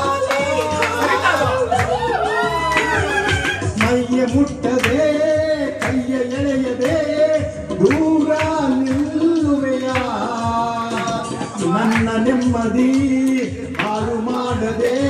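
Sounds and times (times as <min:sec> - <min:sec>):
man singing: 0:00.0 - 0:01.8, 0:03.6 - 0:15.0
karaoke backing track: 0:00.0 - 0:15.0.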